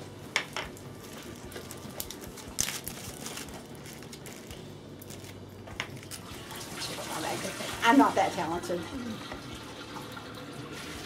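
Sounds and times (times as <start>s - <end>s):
faint room hum: 0.0s - 11.0s
plastic bags crinkling: 0.8s - 6.3s.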